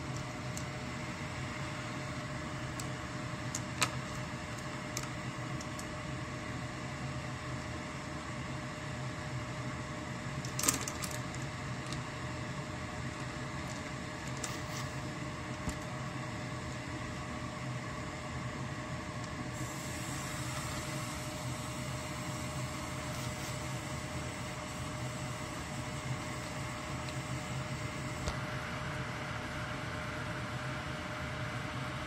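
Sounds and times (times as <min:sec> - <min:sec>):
appliance hum with hiss: 0:00.0 - 0:32.0.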